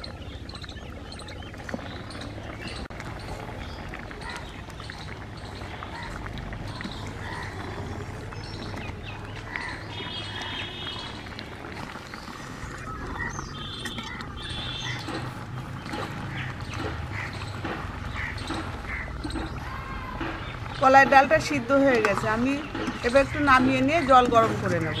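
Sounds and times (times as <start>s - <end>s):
birds chirping: 0.0s - 25.0s
buzzy trilling bird calls: 12.0s - 20.8s.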